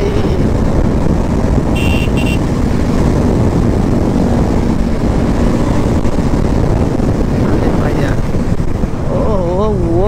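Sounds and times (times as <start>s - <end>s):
motorcycle wind and road noise: 0.0s - 10.0s
horn beeps: 1.7s - 2.4s.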